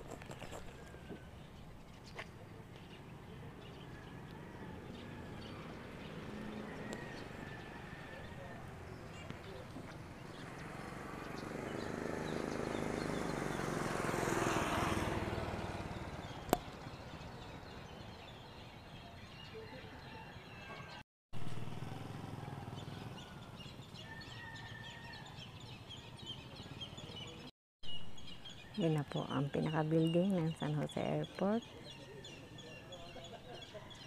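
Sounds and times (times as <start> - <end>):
birds chirping: 0.0 - 21.0, 22.4 - 34.0
motor vehicle passing: 3.6 - 19.5, 21.4 - 27.5.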